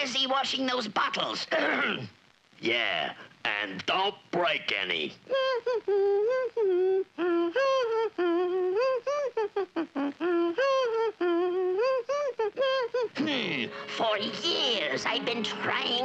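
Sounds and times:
cartoon voice singing wordless tune: 9.7s - 16.0s.

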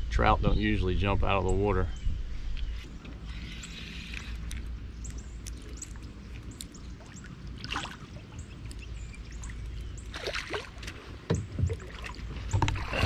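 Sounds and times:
open water ambience: 0.0s - 13.0s
knocks and splashes: 6.9s - 8.4s, 9.4s - 13.0s.

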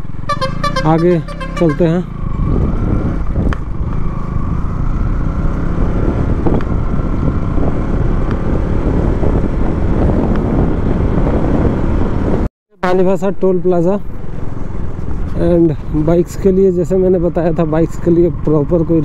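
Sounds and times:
motorcycle engine: 0.0s - 12.5s, 14.0s - 19.0s
wind rumbling on microphone: 2.1s - 12.5s.

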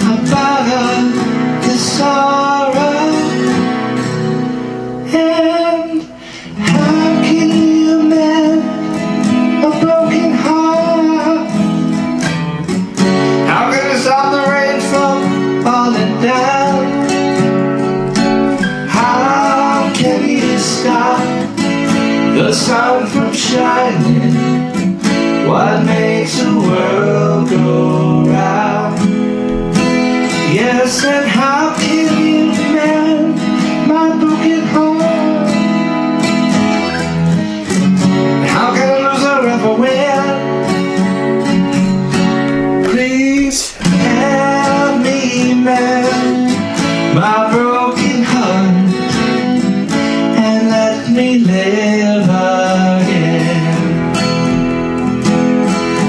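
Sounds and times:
man singing with harmony effect: 0.0s - 3.4s, 5.0s - 8.9s, 9.5s - 11.6s, 13.4s - 17.2s, 18.6s - 21.6s, 22.3s - 24.7s, 25.4s - 35.8s, 38.4s - 40.6s, 42.4s - 49.5s, 50.2s - 54.8s
acoustic guitar strumming: 0.0s - 56.0s.

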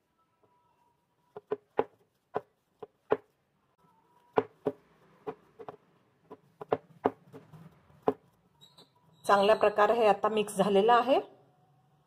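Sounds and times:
dough squelching: 0.4s - 10.0s
dough knocking against glass bowl: 4.4s - 8.2s.

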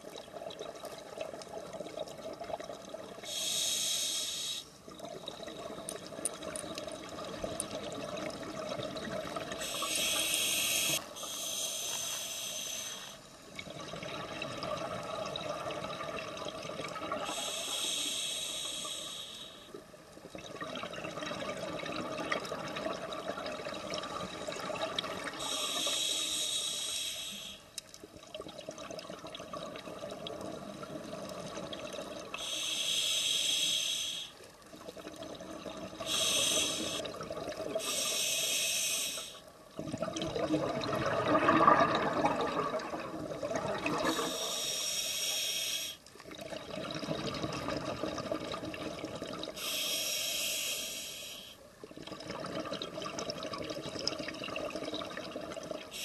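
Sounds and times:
regulator hissing inhalation: 3.3s - 4.7s, 9.6s - 13.2s, 17.2s - 19.7s, 25.4s - 27.7s, 32.4s - 34.4s, 36.0s - 37.1s, 37.8s - 39.4s, 44.0s - 46.0s, 49.6s - 51.6s.

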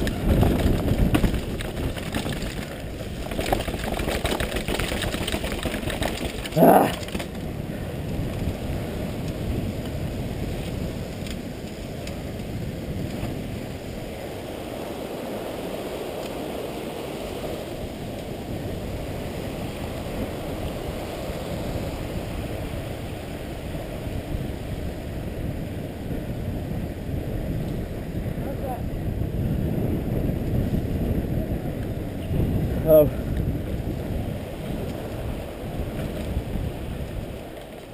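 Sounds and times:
bike tyres rolling on concrete: 0.0s - 37.9s
wind rushing over microphone: 0.0s - 37.9s.

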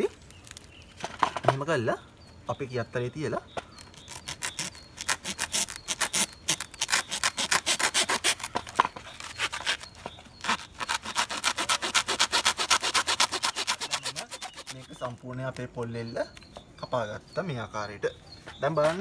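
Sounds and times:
hacksaw rasping through coconut husk: 3.8s - 15.2s.

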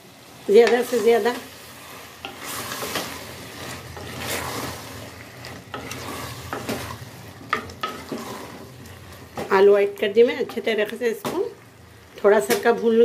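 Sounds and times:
potatoes frying: 0.0s - 13.0s
spatula scraping pan: 0.5s - 9.5s.

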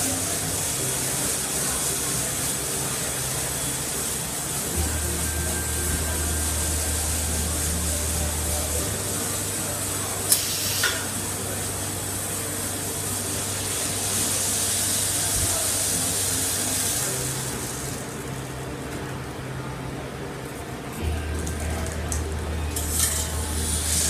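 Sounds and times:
rushing air hiss: 0.0s - 18.0s
machinery low hum: 0.0s - 24.0s.

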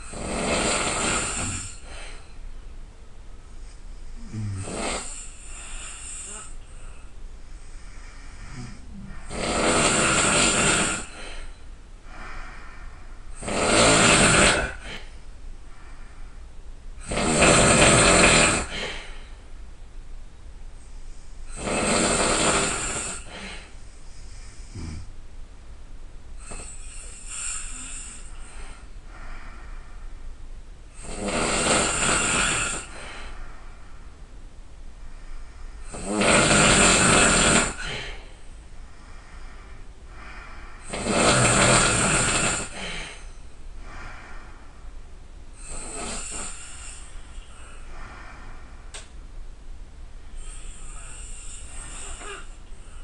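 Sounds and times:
person snoring loudly: 0.0s - 1.8s, 4.2s - 6.6s, 8.4s - 11.4s, 13.4s - 15.1s, 17.0s - 19.1s, 21.5s - 23.8s, 24.6s - 25.1s, 26.4s - 28.8s, 31.0s - 33.3s, 35.9s - 38.3s, 40.8s - 43.3s, 45.6s - 48.0s, 50.4s - 53.0s.

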